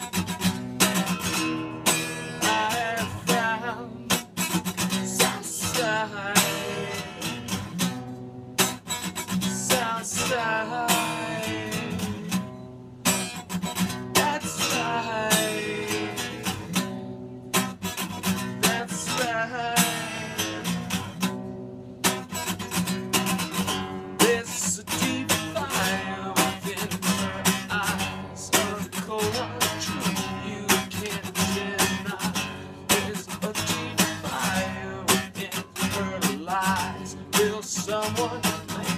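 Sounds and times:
acoustic guitar strumming: 0:00.0 - 0:38.9
man singing: 0:00.8 - 0:07.6, 0:09.2 - 0:12.4, 0:13.8 - 0:16.8, 0:18.2 - 0:21.0, 0:24.2 - 0:38.9.

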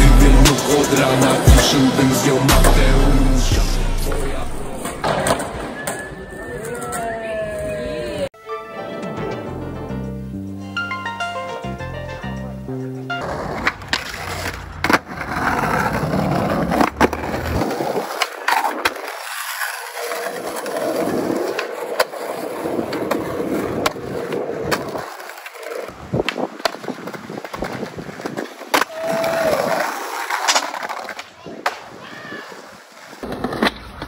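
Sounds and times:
skateboard wheels rolling on concrete: 0:00.0 - 0:34.0
skateboard clacks: 0:13.2 - 0:34.0.

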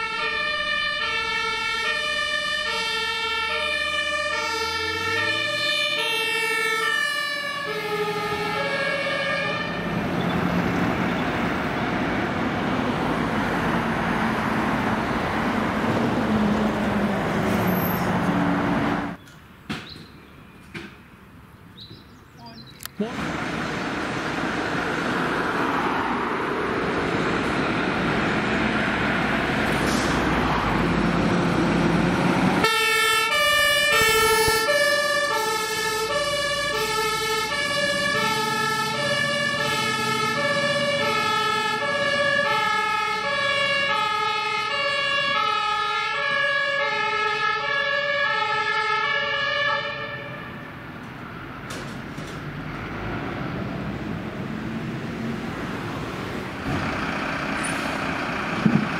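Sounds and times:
two-tone siren: 0:00.0 - 0:10.0, 0:32.6 - 0:50.7
fire engine diesel engine: 0:00.0 - 0:19.8, 0:22.6 - 0:58.9.

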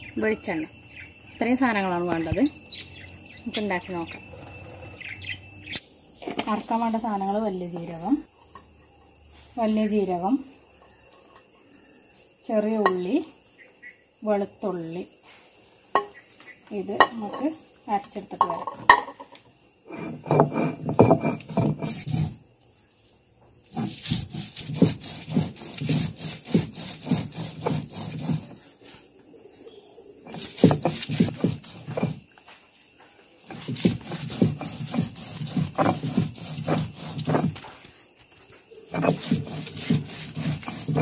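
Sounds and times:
stone roller grinding on stone: 0:03.6 - 0:05.4, 0:19.8 - 0:22.4, 0:23.7 - 0:28.7, 0:30.2 - 0:32.3, 0:33.4 - 0:37.9, 0:38.8 - 0:41.0.

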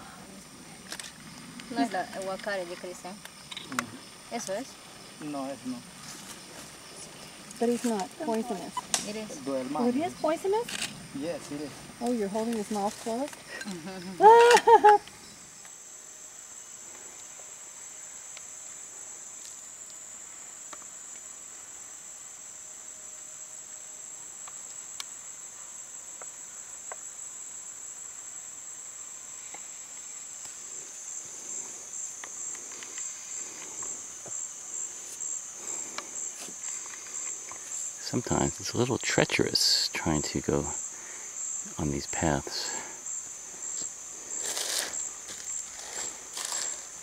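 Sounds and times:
insects buzzing shrilly: 0:00.0 - 0:47.0
footsteps in leaf litter: 0:44.3 - 0:47.0.

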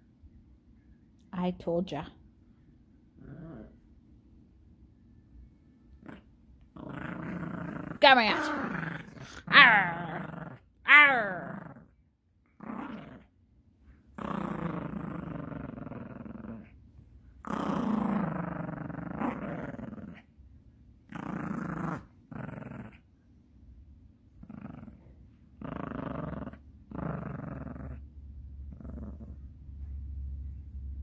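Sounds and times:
small dog growling: 0:03.1 - 0:04.0, 0:05.9 - 0:13.3, 0:14.1 - 0:20.3, 0:21.0 - 0:23.1, 0:24.3 - 0:29.6.

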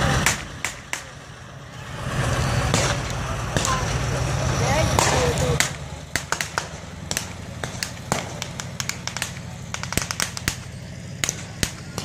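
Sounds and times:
vehicle engine running: 0:00.0 - 0:12.0
blank gunfire cracks: 0:05.0 - 0:12.0.

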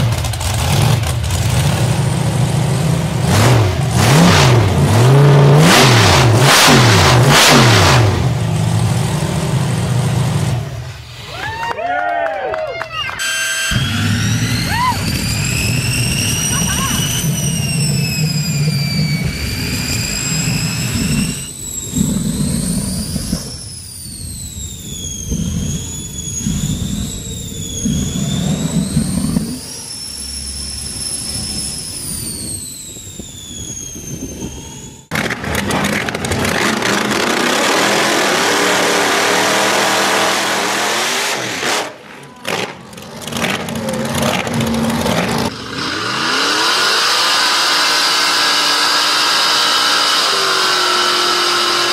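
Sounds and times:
drag car engine at high revs: 0:00.0 - 0:11.2, 0:13.4 - 0:51.9
jet turbine engine whining: 0:13.2 - 0:51.9.

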